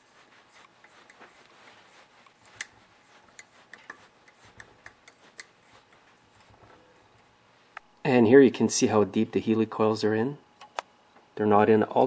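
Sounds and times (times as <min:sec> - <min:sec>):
light metal rubbing: 0:00.0 - 0:07.4.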